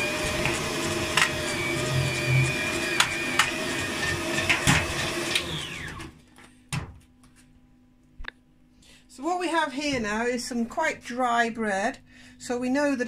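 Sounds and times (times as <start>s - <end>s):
motor winding down whine: 0.0s - 6.1s
stand mixer motor humming: 0.0s - 6.1s.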